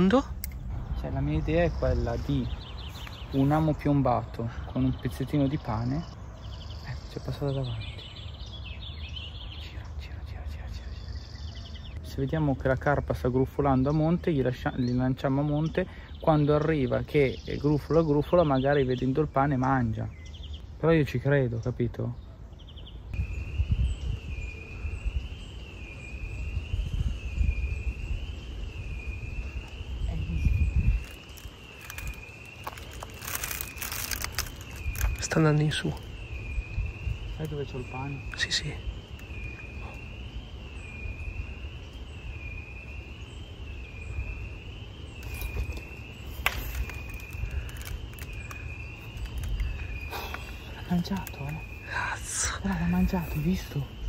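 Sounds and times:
wind rumble on microphone: 0.0 - 3.5, 22.9 - 51.9
sharp click: 0.4 - 0.6
high insect trill: 23.2 - 54.0.

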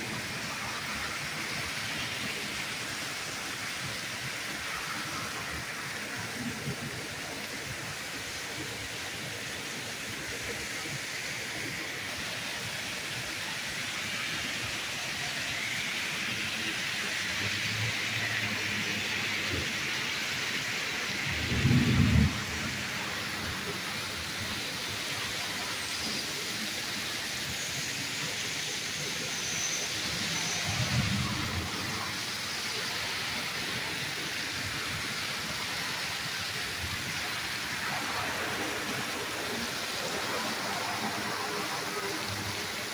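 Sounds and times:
torrential rain hissing: 0.0 - 42.9
low thunder rumbles: 21.3 - 23.6.

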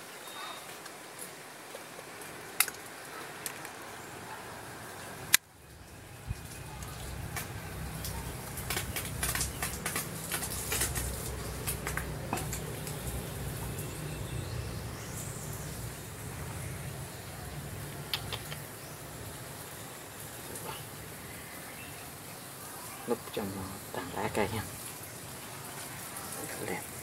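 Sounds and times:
crackling clicks and rustling: 0.7 - 4.0, 5.0 - 20.8.

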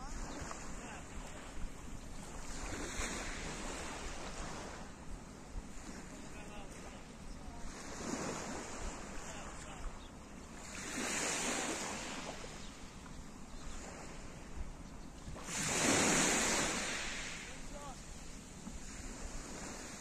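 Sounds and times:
waves breaking on pebble beach: 2.3 - 4.9, 7.6 - 9.8, 10.6 - 12.7, 15.4 - 20.0.

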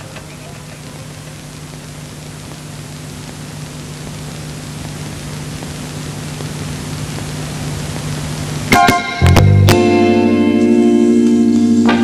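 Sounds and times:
low steady hum: 0.0 - 12.0
steady hiss: 0.0 - 12.0.

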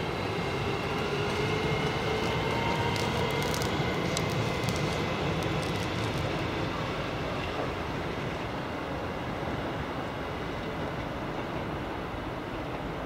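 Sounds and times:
electric train rumble: 0.0 - 13.0.

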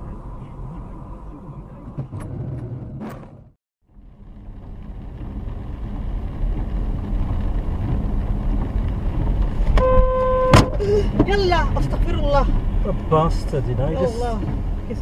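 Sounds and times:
tyres on wet road: 0.0 - 15.0
vehicle engine rumble: 0.0 - 15.0
car horn: 9.7 - 10.8.

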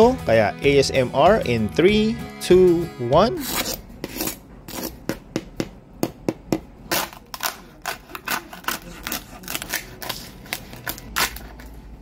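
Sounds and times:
crispy pork skin crackling under knife: 6.9 - 11.7.

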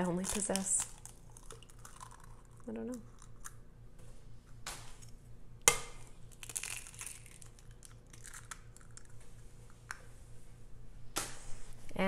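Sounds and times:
eggshell crackling: 0.0 - 3.7, 5.7 - 10.0.

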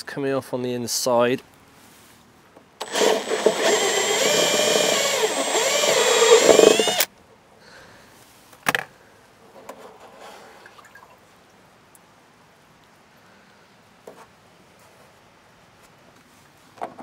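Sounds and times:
cordless drill boring through plastic: 2.8 - 7.1.

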